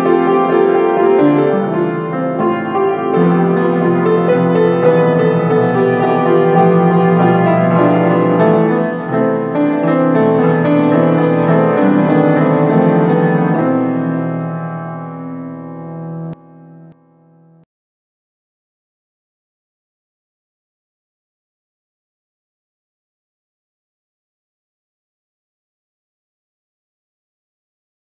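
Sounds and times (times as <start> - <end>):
grand piano playing: 0.0 - 17.6.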